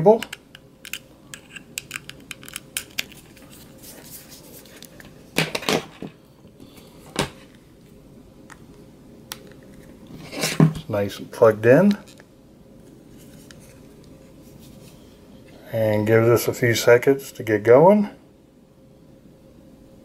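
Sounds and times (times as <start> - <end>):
cable plugs clicking: 0.2 - 3.2.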